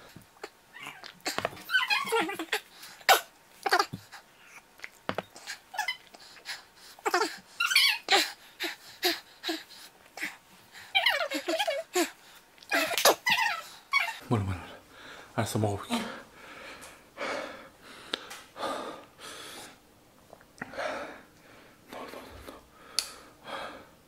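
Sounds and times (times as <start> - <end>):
man breathing sharply: 14.9 - 19.8, 20.6 - 24.0.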